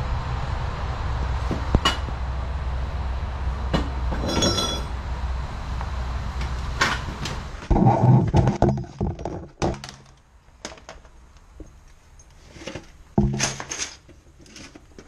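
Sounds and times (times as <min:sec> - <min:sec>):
steady low hum: 0:00.0 - 0:13.7
ringing metal clink: 0:04.2 - 0:04.9.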